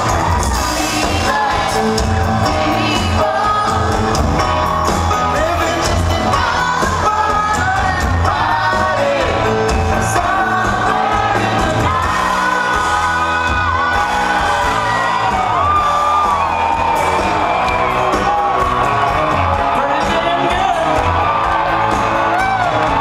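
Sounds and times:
vocalist singing over pa: 0:00.0 - 0:04.1, 0:05.2 - 0:15.6
live pop-rock band: 0:00.0 - 0:23.0.

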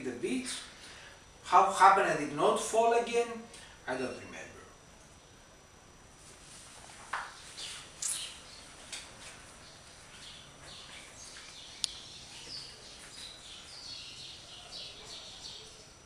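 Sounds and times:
small birds chirping: 0:07.3 - 0:16.0.

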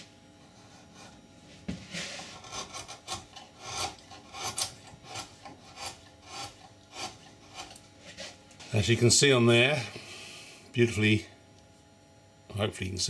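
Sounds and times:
carving tool slicing through wood: 0:02.3 - 0:07.8.

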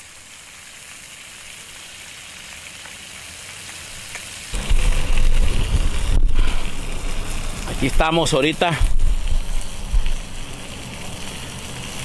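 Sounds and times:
fish sizzling in a pan: 0:00.0 - 0:12.0
low microphone rumble: 0:04.6 - 0:08.0.

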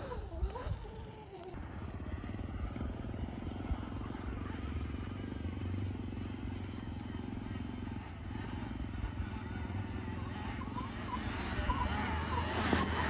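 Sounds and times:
electric motor and chain whirring: 0:00.0 - 0:01.6, 0:05.5 - 0:13.0
tyre churning sand: 0:07.7 - 0:13.0.

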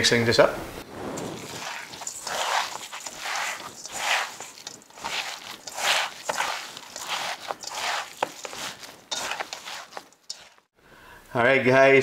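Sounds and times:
wet squelching of kneaded meat: 0:01.1 - 0:10.7.

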